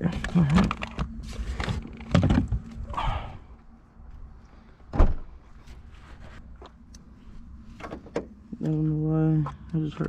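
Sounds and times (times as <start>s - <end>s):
heavy thump: 4.9s - 5.3s.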